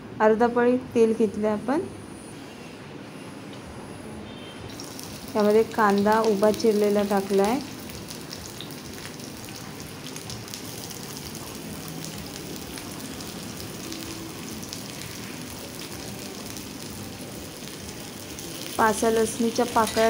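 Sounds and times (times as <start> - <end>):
onion sizzling in hot oil: 4.7 - 20.0.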